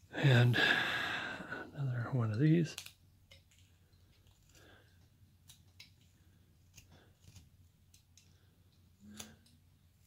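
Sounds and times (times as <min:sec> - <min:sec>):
knife carving wood: 0:02.8 - 0:04.8, 0:05.4 - 0:10.0.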